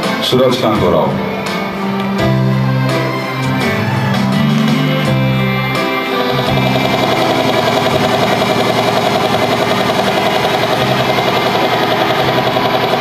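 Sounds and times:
pulsing mechanical drone: 6.2s - 13.0s.

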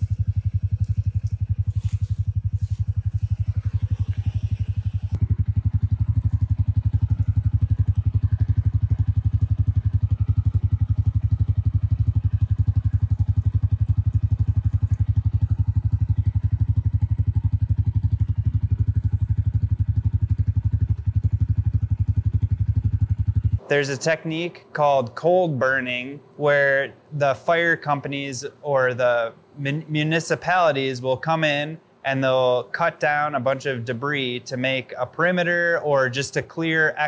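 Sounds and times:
pulsing engine-like drone: 0.0s - 25.0s.

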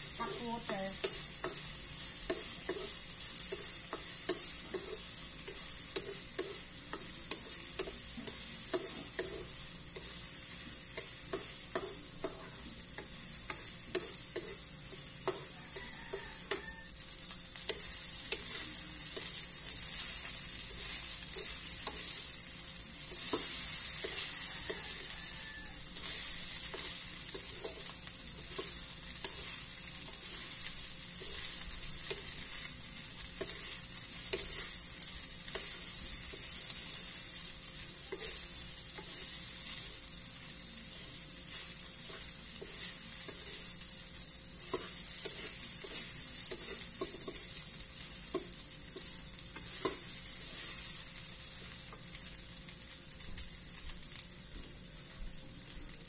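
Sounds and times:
food sizzling in a wok: 0.0s - 56.0s
wooden spatula scraping a pan: 38.1s - 40.0s, 41.6s - 43.8s, 44.6s - 47.6s.

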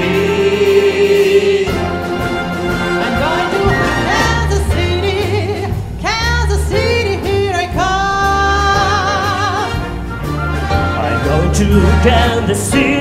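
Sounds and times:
women singing: 0.0s - 1.9s, 3.1s - 9.8s
symphony orchestra: 0.0s - 13.0s.

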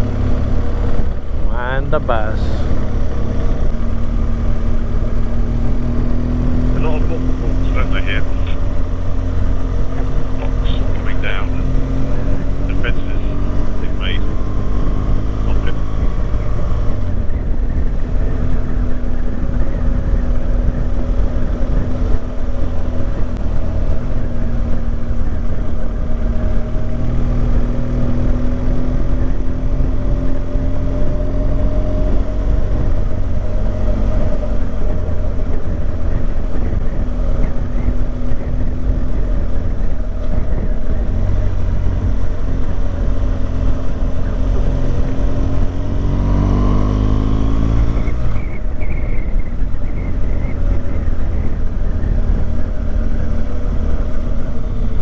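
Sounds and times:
motorcycle engine cruising: 0.0s - 55.0s
wind noise on microphone: 2.6s - 55.0s.

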